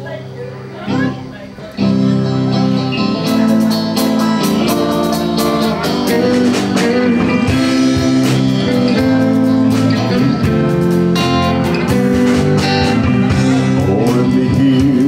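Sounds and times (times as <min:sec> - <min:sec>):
live country band playing: 0:00.0 - 0:15.0
drum and cymbal hits: 0:03.2 - 0:15.0.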